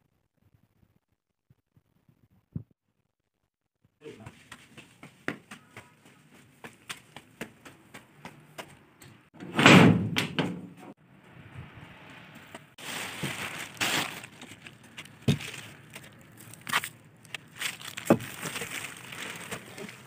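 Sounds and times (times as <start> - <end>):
scuffing and shuffling: 4.0 - 8.9, 12.8 - 20.0
light footsteps: 4.1 - 9.2
door banging open: 9.4 - 10.8.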